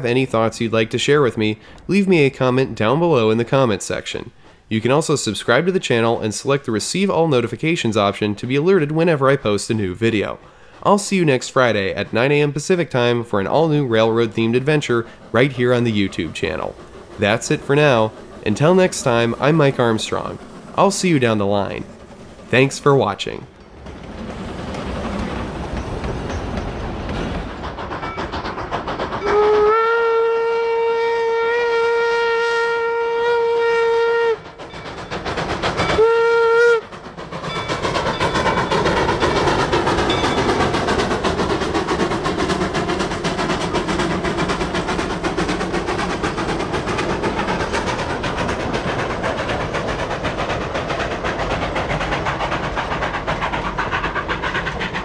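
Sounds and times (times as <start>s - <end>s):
train cars clattering: 0.0s - 30.5s, 33.6s - 55.0s
train running noise: 0.0s - 55.0s
steam exhaust: 8.7s - 23.4s, 24.2s - 55.0s
steam whistle blasts: 29.2s - 34.4s, 36.0s - 36.9s.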